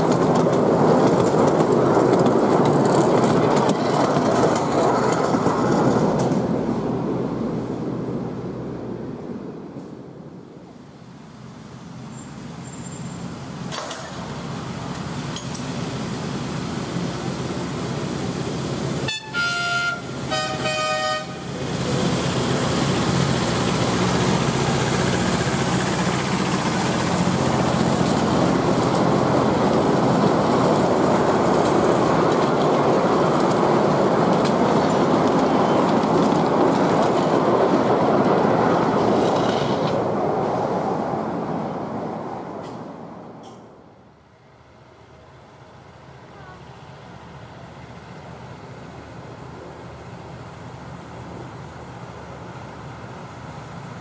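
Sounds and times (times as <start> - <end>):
miniature diesel train running: 0.0 - 6.7, 11.4 - 40.1
train horn blasts: 19.1 - 21.5.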